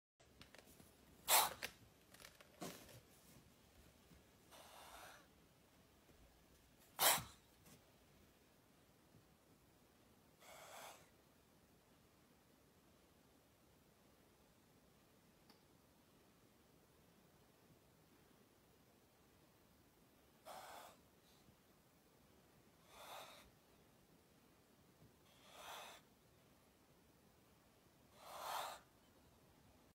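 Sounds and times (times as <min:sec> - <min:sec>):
cobra hissing: 0:01.3 - 0:01.6, 0:07.0 - 0:07.4, 0:20.4 - 0:21.1, 0:22.8 - 0:23.5, 0:25.3 - 0:26.1, 0:28.1 - 0:28.9.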